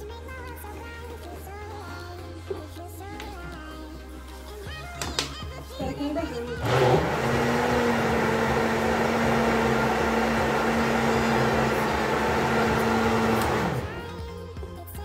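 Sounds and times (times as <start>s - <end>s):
blender motor running: 6.6s - 14.2s.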